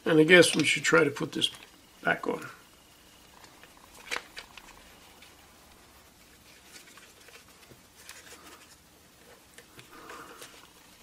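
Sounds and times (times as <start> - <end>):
rubber rubbing and handling: 3.3 - 11.0.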